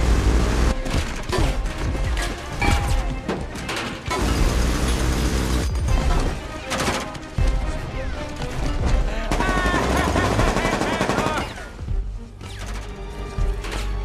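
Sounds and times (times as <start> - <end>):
film score music: 0.0 - 14.0
automatic gunfire bursts: 9.3 - 11.5.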